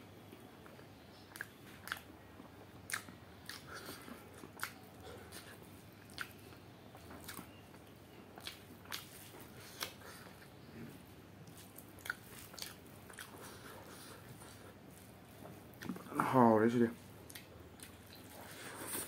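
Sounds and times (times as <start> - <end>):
close-up chewing: 0.6 - 16.2, 17.0 - 19.0
wet lip smacks: 2.9 - 5.5.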